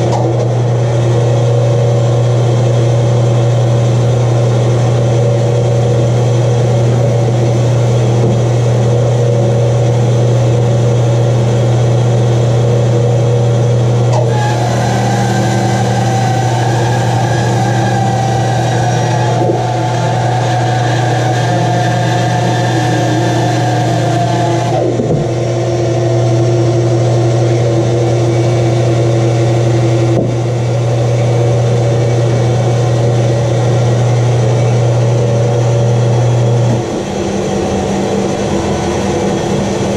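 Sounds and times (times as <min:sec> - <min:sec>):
bandsaw motor hum: 0:00.0 - 0:39.9
bandsaw blade cutting wood: 0:14.1 - 0:25.2.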